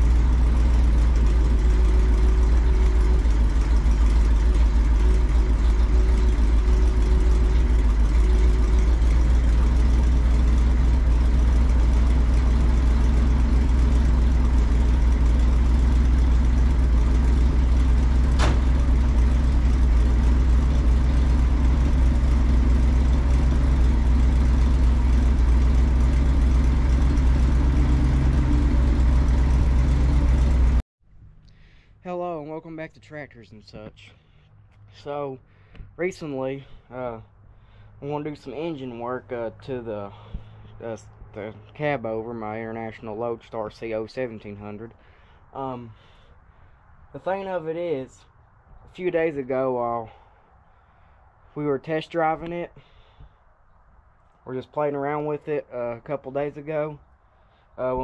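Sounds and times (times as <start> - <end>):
truck engine idling: 0.0 - 58.0.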